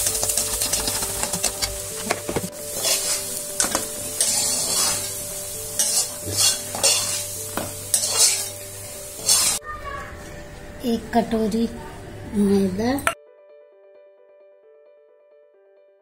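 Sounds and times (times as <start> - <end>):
spoon scraping a pan: 0.0 - 9.6
light sizzle of frying: 0.0 - 11.7.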